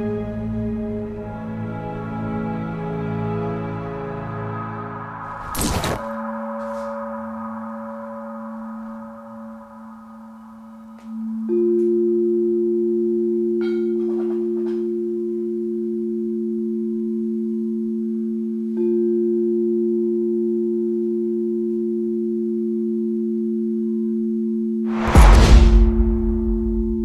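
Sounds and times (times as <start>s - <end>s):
singing bowls ringing: 6.2s - 23.1s.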